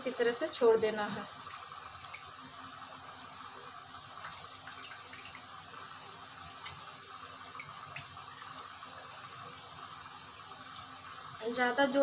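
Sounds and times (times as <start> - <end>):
faint steady hiss: 0.0 - 12.0
water dripping into steel bowl: 4.1 - 5.6, 6.4 - 9.2.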